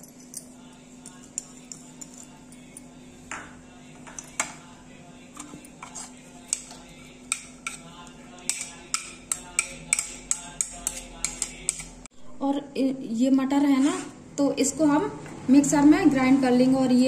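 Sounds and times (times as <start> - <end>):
knife tapping and scraping ceramic plate: 5.4 - 12.0.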